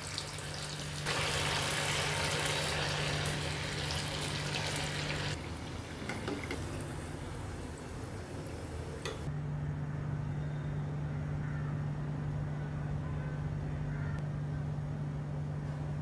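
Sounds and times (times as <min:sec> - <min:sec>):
spring rolls sizzling in oil: 0:00.0 - 0:05.9
steady low hum: 0:05.3 - 0:16.0.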